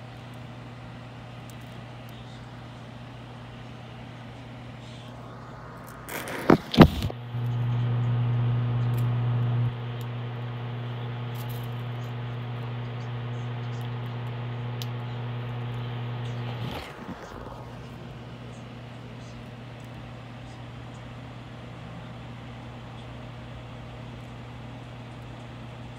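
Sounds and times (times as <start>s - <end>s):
steady low hum: 0.0s - 25.9s
phone handling rustling: 6.1s - 7.1s.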